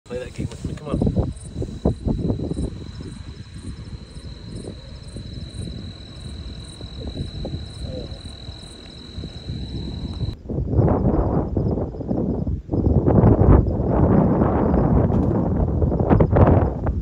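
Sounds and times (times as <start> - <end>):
microphone handling noise: 0.1 - 3.8
wind rumble: 0.1 - 17.0
high pulsing insect chirp: 0.7 - 10.4
insects trilling: 0.7 - 10.4.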